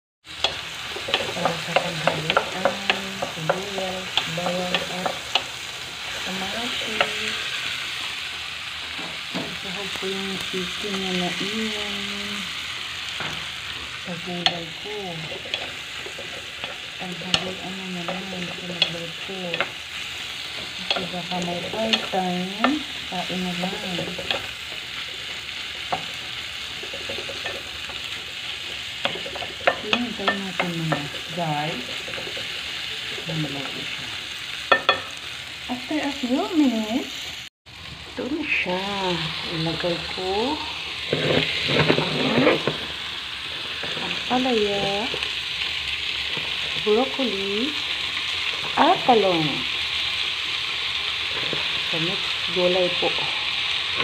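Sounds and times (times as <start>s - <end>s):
vegetables sizzling in a pan: 0.2s - 54.0s
wooden spatula scraping a pan: 13.1s - 35.2s, 39.8s - 45.3s, 51.2s - 52.0s.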